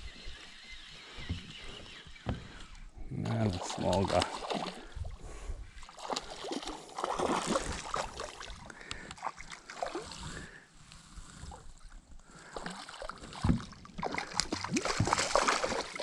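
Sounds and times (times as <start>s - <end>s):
fish splashing in water: 3.4s - 4.9s, 5.9s - 10.0s, 12.5s - 16.0s.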